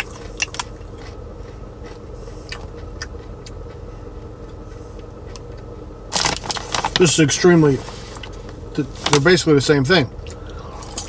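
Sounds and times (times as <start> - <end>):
popcorn chewing crunches: 0.0 - 7.4, 10.2 - 11.0
low car cabin hum: 0.0 - 11.0.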